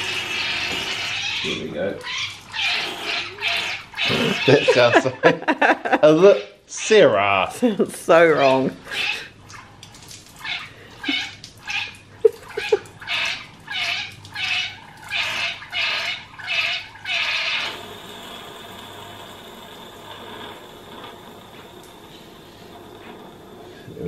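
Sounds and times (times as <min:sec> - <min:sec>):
air gurgling through water: 0:17.2 - 0:24.0
air hissing: 0:17.6 - 0:24.0.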